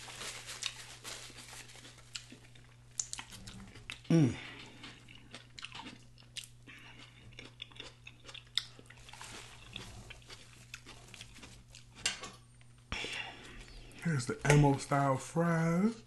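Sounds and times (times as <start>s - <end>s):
faint low hum: 0.0s - 16.0s
wet chewing and crunching: 0.2s - 12.7s.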